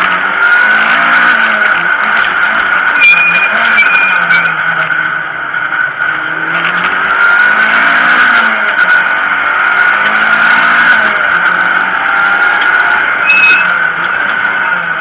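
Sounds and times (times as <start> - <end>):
car engine revving: 0.0 - 15.0
high whine: 11.6 - 15.0.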